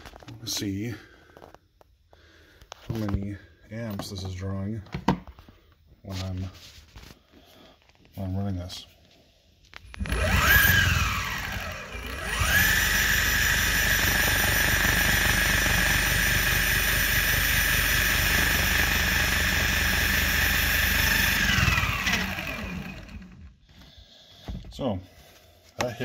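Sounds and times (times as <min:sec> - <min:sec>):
electric motor whine: 0:09.9 - 0:23.6.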